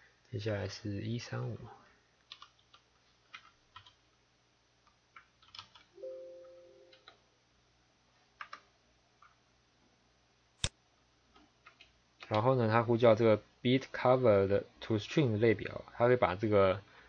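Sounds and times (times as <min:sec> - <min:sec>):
computer keyboard keystrokes: 0:02.3 - 0:04.0, 0:05.2 - 0:05.9
low steady tone: 0:06.0 - 0:07.2.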